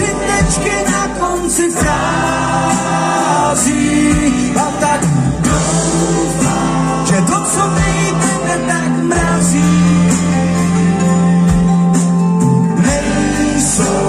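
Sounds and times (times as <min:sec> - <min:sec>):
live band with fiddles and drums: 0:00.0 - 0:14.0
person singing: 0:12.6 - 0:14.0.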